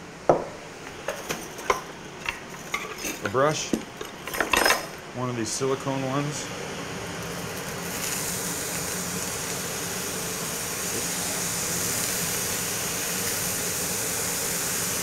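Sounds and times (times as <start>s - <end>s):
range hood fan humming: 0.0s - 15.0s
sauce sizzling in a hot pan: 6.4s - 15.0s.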